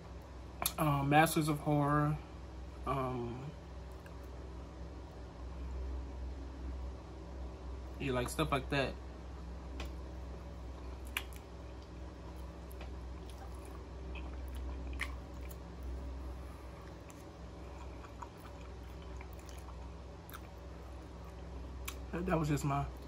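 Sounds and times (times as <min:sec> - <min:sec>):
steady low hum: 0:00.0 - 0:23.0
wet chewing: 0:09.8 - 0:22.1.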